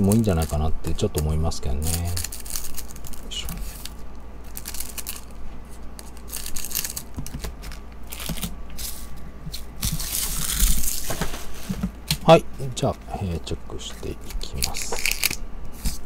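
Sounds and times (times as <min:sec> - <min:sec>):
wrappers crinkling: 0:00.0 - 0:09.0, 0:09.6 - 0:11.3, 0:14.2 - 0:16.0.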